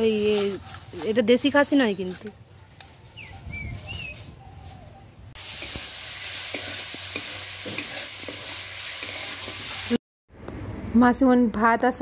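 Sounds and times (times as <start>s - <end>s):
greens sizzling in a pan: 5.4s - 10.0s.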